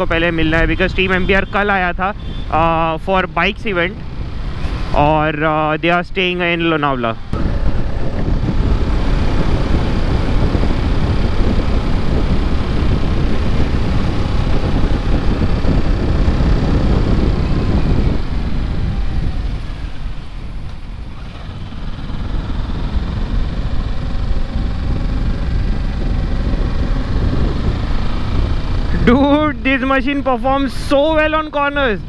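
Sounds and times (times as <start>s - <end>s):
wind rush on camera: 0.0s - 32.0s
motorcycle engine running: 7.2s - 32.0s.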